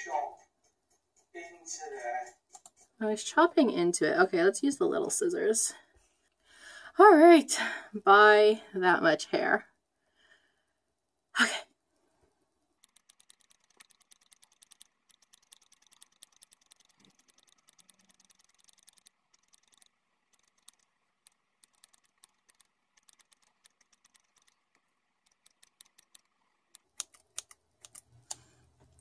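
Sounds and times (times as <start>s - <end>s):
scissors snipping hair: 12.8s - 28.4s.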